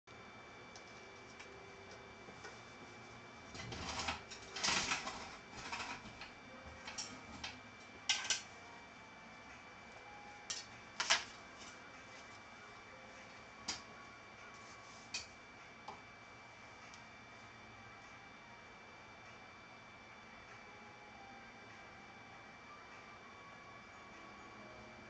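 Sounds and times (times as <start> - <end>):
faint high hum: 0.1 - 25.0.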